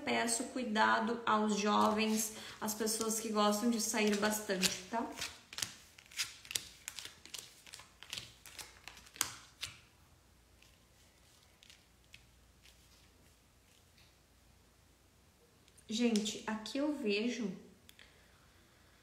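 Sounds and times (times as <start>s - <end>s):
cards clicking and tapping: 4.0s - 9.8s.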